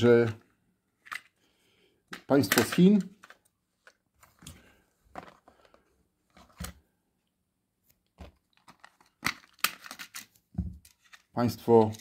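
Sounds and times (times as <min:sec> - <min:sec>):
plastic cassette cases clicking: 0:02.1 - 0:04.5, 0:08.2 - 0:12.0.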